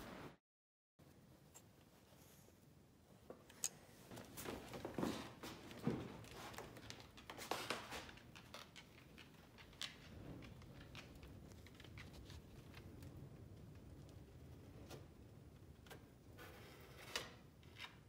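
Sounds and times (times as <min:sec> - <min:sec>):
dog claws clicking on wooden floor: 0:06.1 - 0:13.0.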